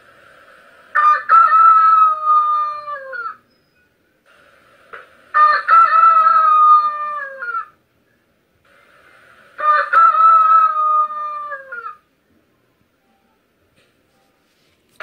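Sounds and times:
rooster crowing: 0.9 - 3.4, 5.3 - 7.8, 9.6 - 12.0.

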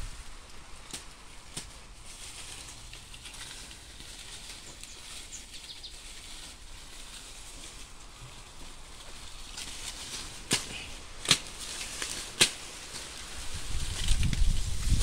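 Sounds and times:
dry stalks and leaves rustling: 0.0 - 15.0.

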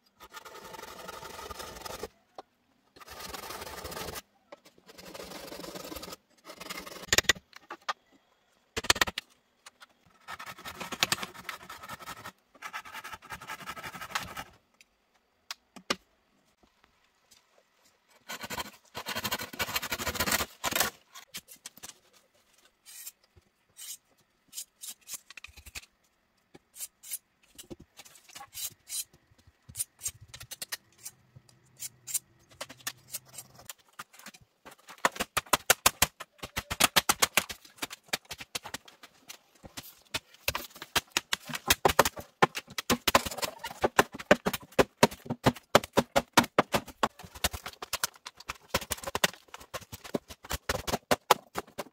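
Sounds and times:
machete scraping bamboo: 22.8 - 23.2, 23.8 - 25.4, 26.7 - 27.2.

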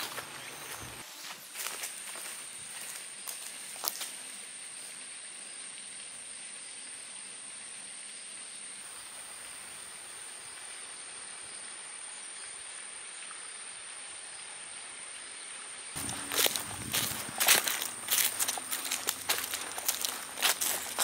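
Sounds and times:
footsteps on leafy ground: 0.0 - 4.3, 16.0 - 21.0
outdoor hiss: 0.0 - 21.0.

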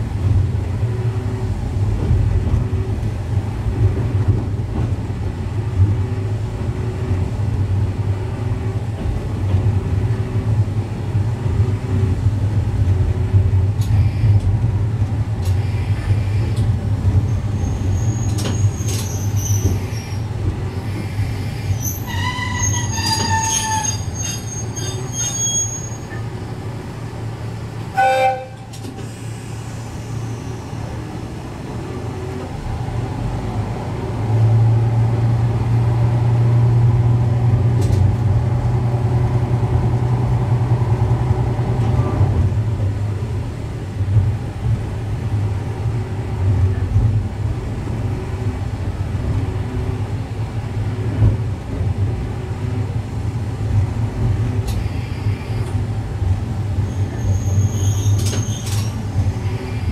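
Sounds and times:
diesel railcar engine humming: 0.0 - 59.9
metallic wheel squeal: 17.3 - 20.2, 21.7 - 26.2, 56.9 - 59.0
short horn toot: 28.0 - 28.8.

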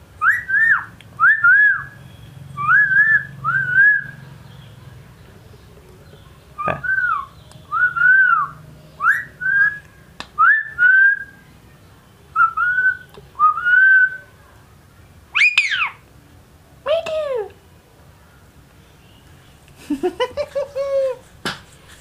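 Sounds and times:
parakeet harsh calls: 15.3 - 16.0.

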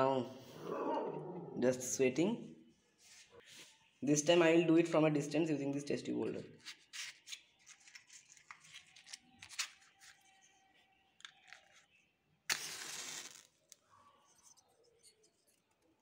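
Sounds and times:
matchbox clicks and rustles: 6.6 - 10.4, 12.5 - 13.8
match striking and flaring: 12.5 - 13.8.

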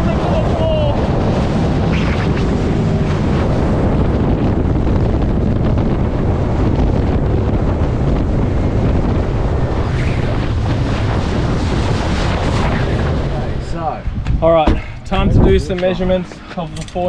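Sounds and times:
water rushing and spraying: 0.0 - 4.2
outboard motor humming: 0.0 - 9.7
wind buffeting microphone: 0.0 - 17.0.

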